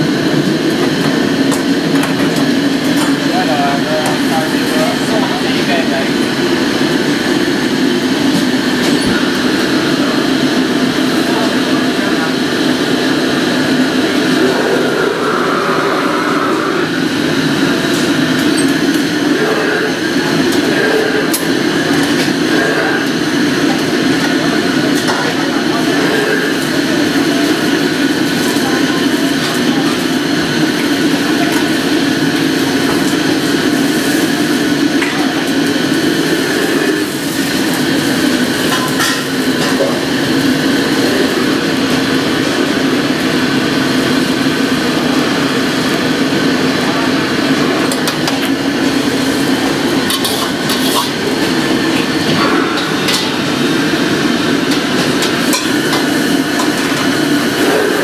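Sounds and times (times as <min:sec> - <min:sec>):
gas burner and extractor rushing: 0:00.0 - 0:58.0.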